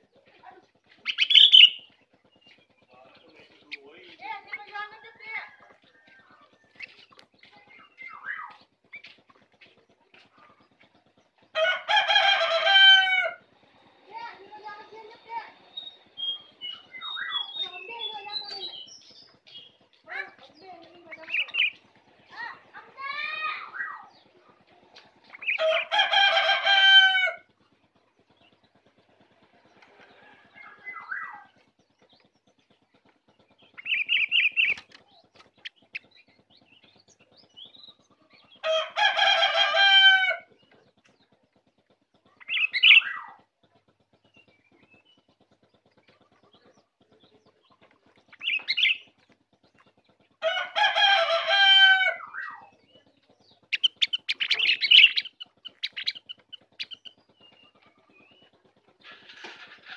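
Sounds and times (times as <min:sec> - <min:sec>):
short high bird calls: 0:01.1 - 0:01.9
rooster crowing: 0:11.6 - 0:13.4, 0:25.6 - 0:27.5, 0:38.6 - 0:40.5, 0:50.4 - 0:52.6.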